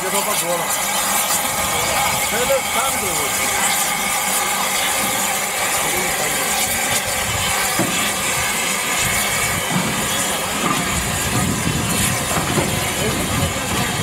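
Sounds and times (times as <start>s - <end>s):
steam crane hissing: 0.0s - 14.0s.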